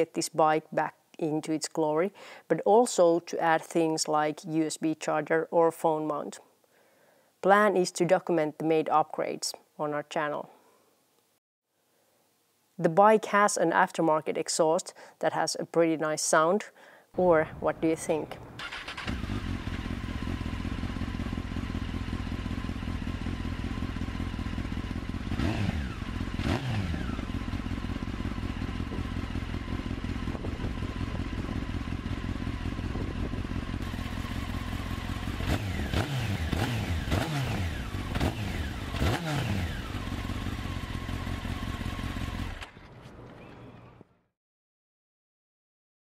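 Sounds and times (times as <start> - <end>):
motorcycle throttle blips: 18.3 - 44.1
motorcycle engine idling: 18.4 - 44.0.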